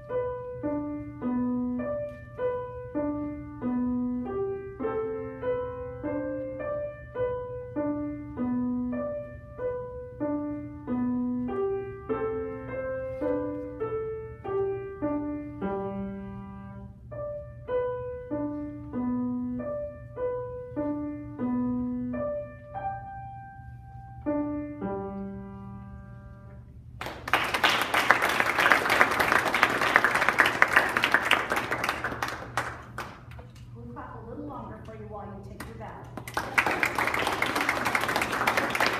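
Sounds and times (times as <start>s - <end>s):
solo grand piano: 0.0s - 27.3s
audience applause: 27.0s - 33.2s, 36.2s - 38.9s.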